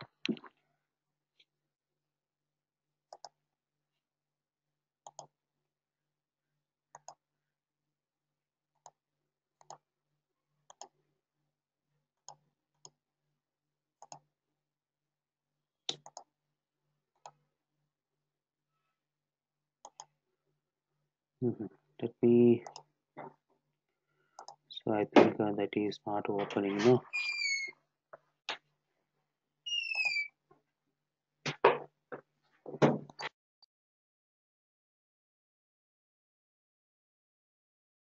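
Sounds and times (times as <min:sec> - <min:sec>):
computer mouse buttons clicking: 0:05.1 - 0:05.3, 0:07.0 - 0:07.2, 0:10.7 - 0:11.0, 0:14.0 - 0:14.2, 0:15.9 - 0:16.3, 0:19.8 - 0:20.1, 0:24.4 - 0:24.6.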